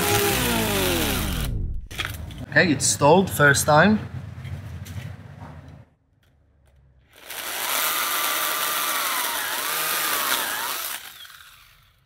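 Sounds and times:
pruning saw motor whine: 0:00.0 - 0:01.7, 0:07.1 - 0:12.0.

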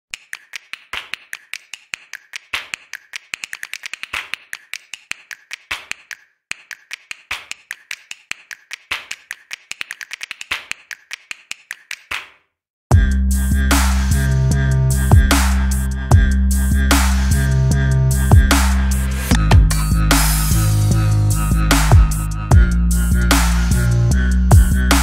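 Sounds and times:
rapid sharp clicks: 0:00.1 - 0:12.3.

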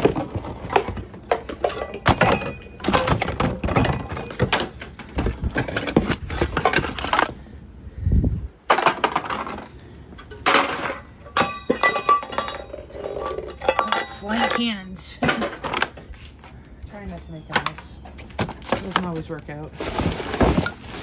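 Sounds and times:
clinks and thuds: 0:00.0 - 0:07.3, 0:08.7 - 0:16.1
cardboard and plastic rustling: 0:00.0 - 0:07.4, 0:17.6 - 0:21.0.

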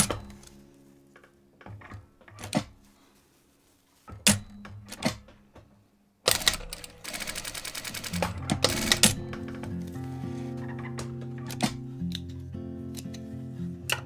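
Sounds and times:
sewing machine stitching: 0:06.3 - 0:09.2
sewing machine clicks and knocks: 0:06.3 - 0:09.5.

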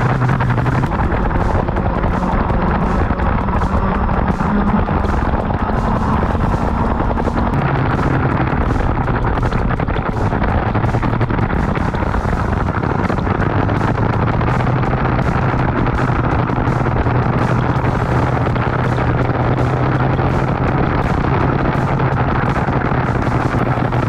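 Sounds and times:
kart engine running: 0:00.0 - 0:24.0
wind buffeting microphone: 0:00.0 - 0:24.0.

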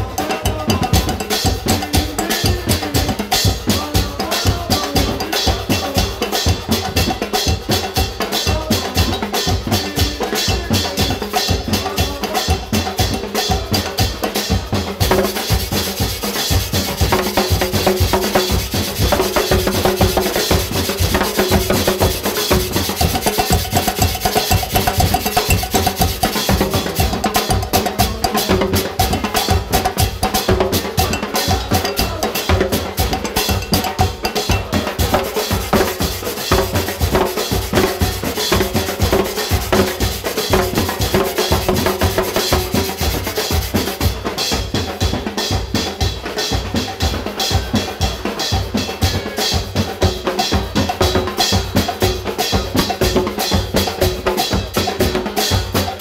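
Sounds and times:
snare drum: 0:00.0 - 0:56.0
metal shaker: 0:15.1 - 0:44.0.

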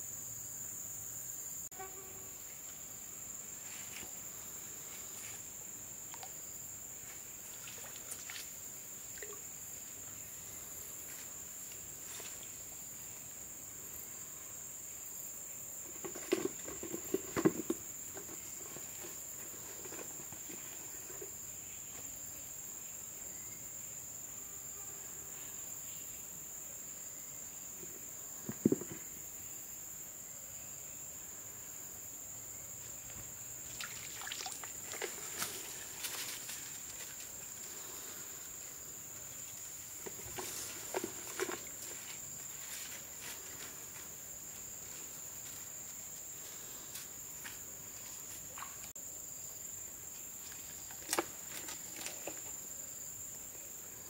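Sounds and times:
insects trilling: 0:00.0 - 0:54.0
knocks and rustles: 0:15.9 - 0:21.4, 0:27.8 - 0:29.1, 0:40.0 - 0:43.7.

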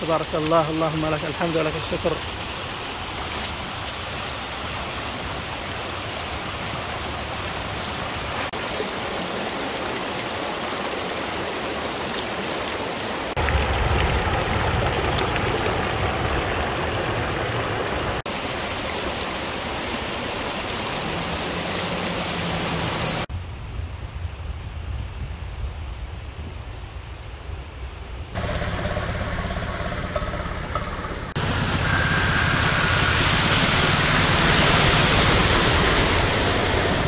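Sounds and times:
flood water rushing: 0:00.0 - 0:23.3, 0:31.3 - 0:37.0.

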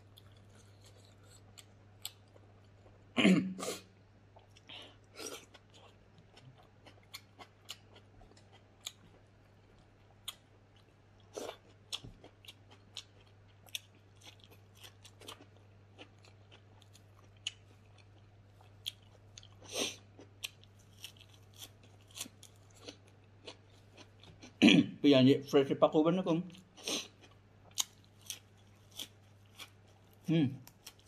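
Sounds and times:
person chewing crunchy vegetables: 0:00.0 - 0:24.6, 0:26.5 - 0:31.0
faint low hum: 0:00.0 - 0:31.0.

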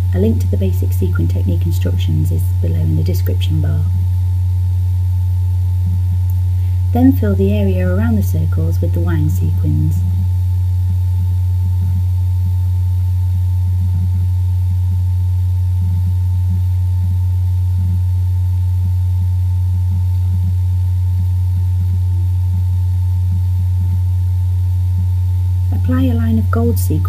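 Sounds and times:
loud steady low hum: 0:00.0 - 0:27.0.

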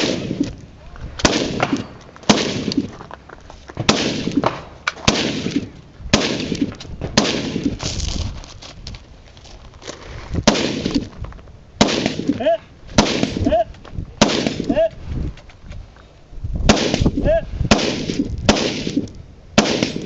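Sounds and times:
gunshots with ring-out: 0:00.0 - 0:00.4, 0:01.2 - 0:02.9, 0:03.8 - 0:07.8, 0:10.4 - 0:11.0, 0:11.8 - 0:12.4, 0:13.0 - 0:13.5, 0:14.2 - 0:14.8, 0:16.7 - 0:20.0.

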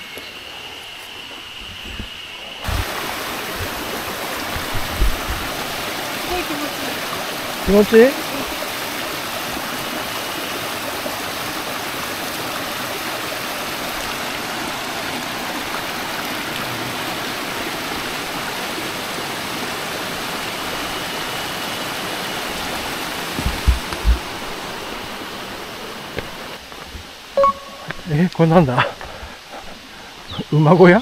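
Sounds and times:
stream rushing over rocks: 0:02.6 - 0:28.3
low thumps: 0:23.4 - 0:24.3.

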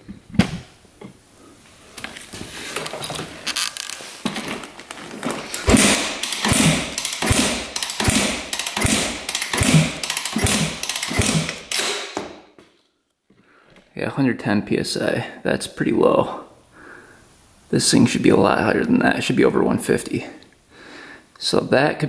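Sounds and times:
motorcycle kick-starter strokes: 0:02.7 - 0:12.3.

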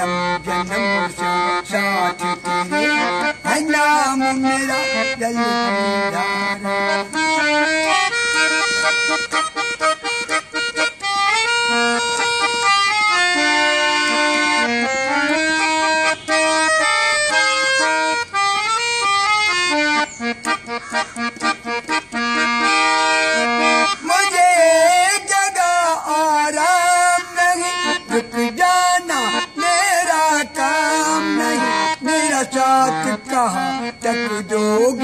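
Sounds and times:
man singing long wavering notes: 0:00.0 - 0:07.1, 0:23.9 - 0:35.0
harmonium melody: 0:00.0 - 0:35.0.

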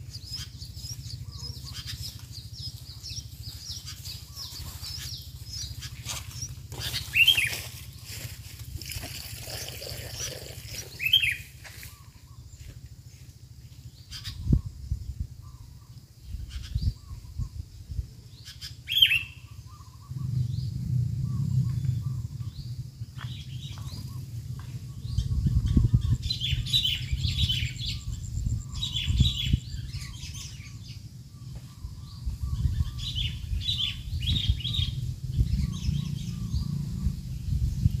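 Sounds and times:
bird chicks begging chirps: 0:00.0 - 0:12.7, 0:18.3 - 0:38.0
low rumble: 0:19.5 - 0:38.0.

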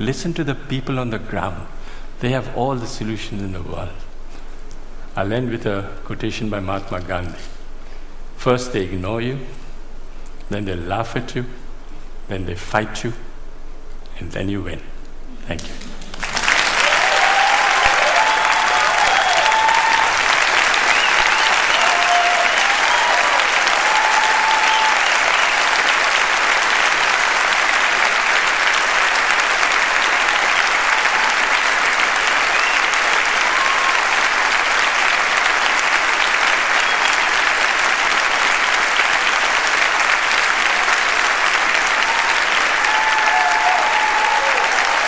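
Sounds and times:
large audience applauding: 0:15.6 - 0:45.0.

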